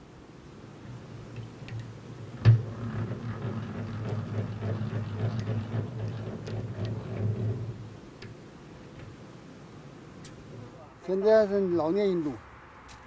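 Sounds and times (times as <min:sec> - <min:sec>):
hand-cranked extractor humming: 0:01.3 - 0:09.2
metallic ticks and rattles: 0:01.3 - 0:09.2.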